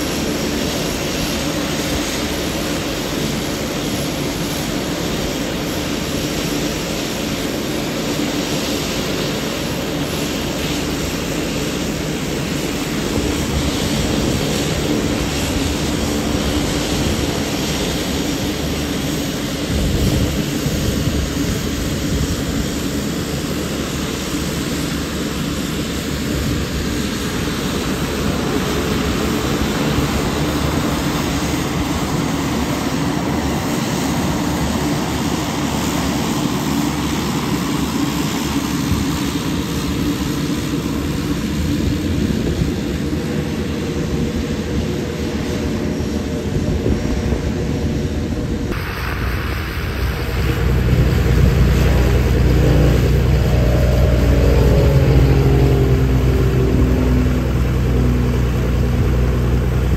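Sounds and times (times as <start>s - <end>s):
propeller hum: 0.0s - 59.9s
turbine whine: 0.0s - 59.9s.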